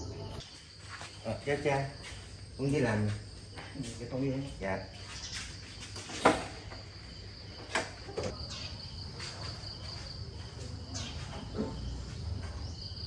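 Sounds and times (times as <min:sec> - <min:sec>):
high insect trill: 0:00.0 - 0:13.0.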